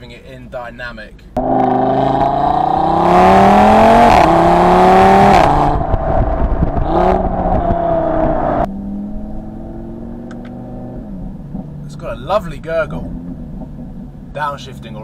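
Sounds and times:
car exhaust accelerating hard: 1.4 - 14.3.

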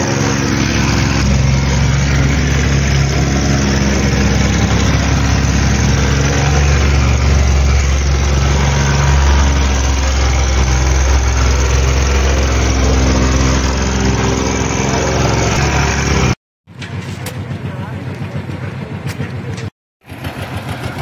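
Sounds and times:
plate compactor engine hum: 0.0 - 18.9.

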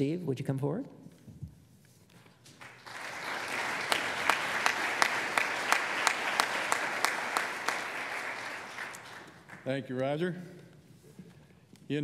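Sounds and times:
sharp regular claps: 2.4 - 10.2
audience applauding: 2.5 - 9.9.

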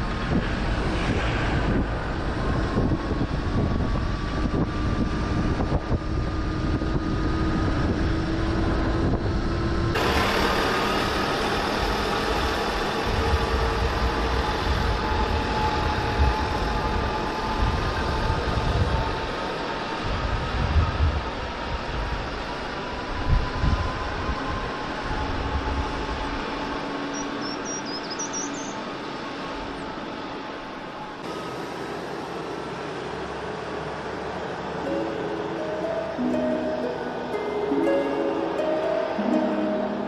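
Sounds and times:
engine and tyre rumble: 0.0 - 37.4
faint rising tone: 34.7 - 40.0.

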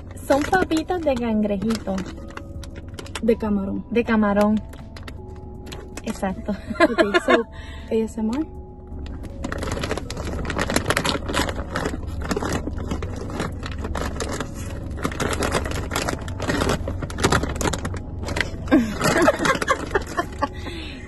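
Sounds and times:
plastic snack bag crinkling: 0.0 - 3.3, 9.0 - 20.8
low hum: 0.0 - 21.0.

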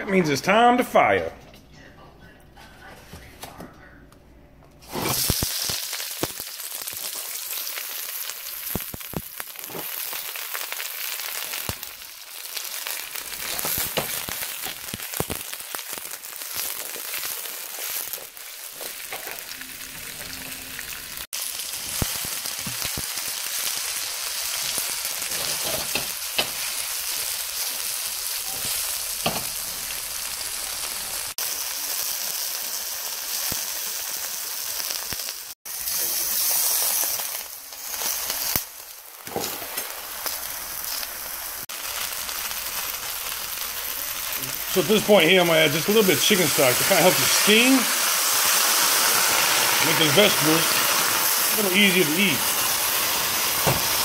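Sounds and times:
food sizzling in hot oil: 4.8 - 54.0
stir-frying hiss: 4.8 - 54.0.

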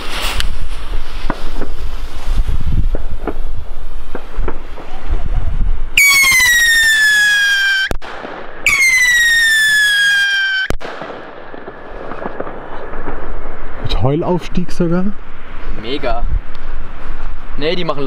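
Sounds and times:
firework bang: 0.0 - 5.0, 6.0 - 14.0
firework rocket whistle: 5.9 - 8.0, 8.6 - 10.8.

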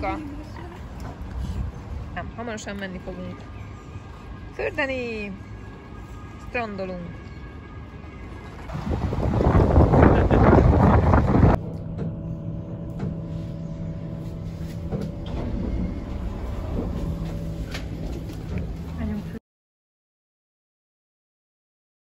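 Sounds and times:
wind buffeting microphone: 8.6 - 11.6
low mechanical lift hum: 10.6 - 19.4.

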